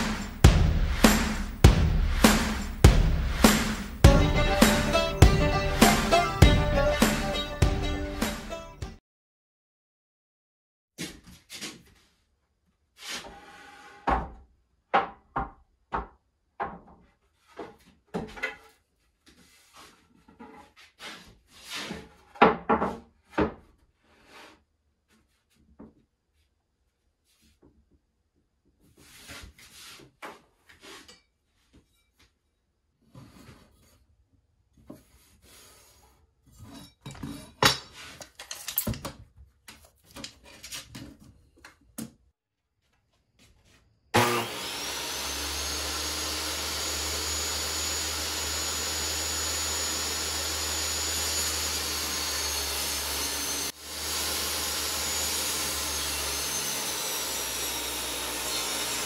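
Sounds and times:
table saw cutting wood: 0:00.0 - 0:08.8, 0:44.2 - 0:59.0.

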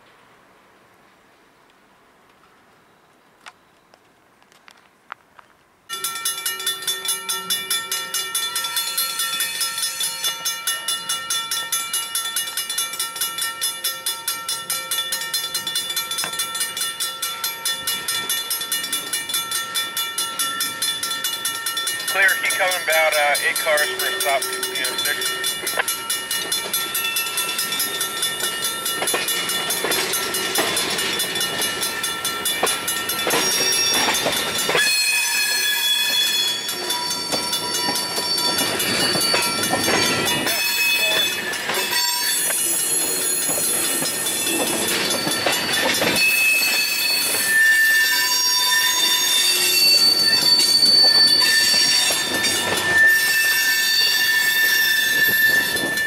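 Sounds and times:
rumble of moving train: 0:05.9 - 0:56.0
steel wheels squealing on rail: 0:20.6 - 0:56.0.

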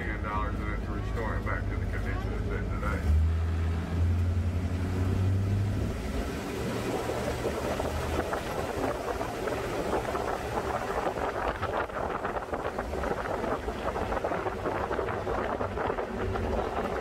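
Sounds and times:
vehicle engine hum: 0:00.0 - 0:17.0
wind and road noise: 0:00.0 - 0:17.0.

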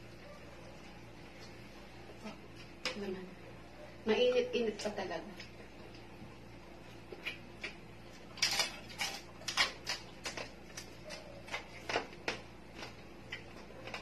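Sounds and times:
crunching and chewing crispy food: 0:06.8 - 0:14.0.

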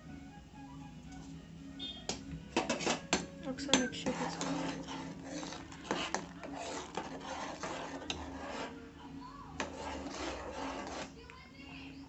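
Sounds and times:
spoon knocking on pot: 0:02.1 - 0:04.8
spoon stirring thick boiling food: 0:02.1 - 0:12.0.

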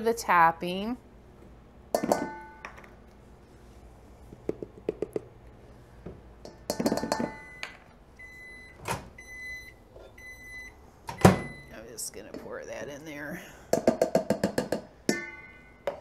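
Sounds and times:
microwave oven beeping: 0:06.9 - 0:12.0.

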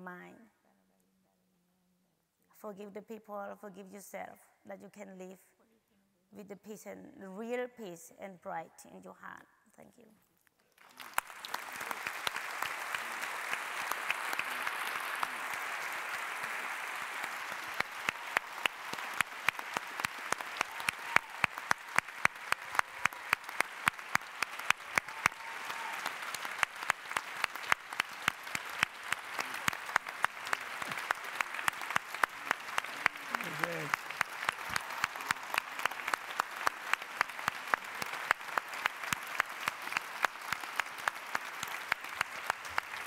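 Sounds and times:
audience applause: 0:10.8 - 0:43.0
close rhythmic hand claps: 0:10.8 - 0:43.0.

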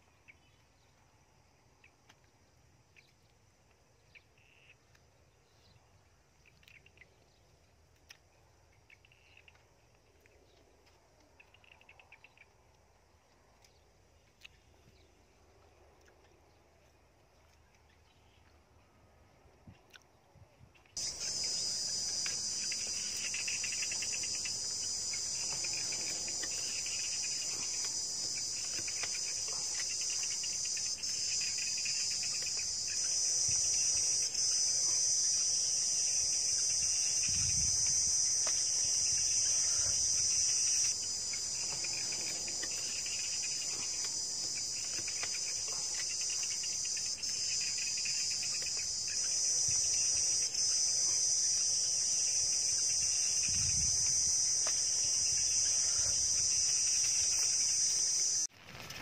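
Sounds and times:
low pulsing insect call: 0:00.0 - 0:59.0
high-pitched insect chorus: 0:21.0 - 0:58.5.

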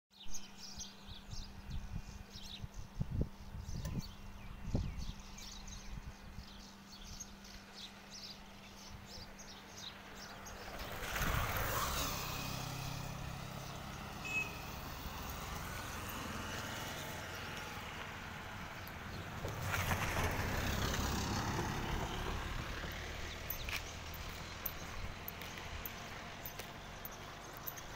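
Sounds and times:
motorcycle passing: 0:09.8 - 0:27.9.

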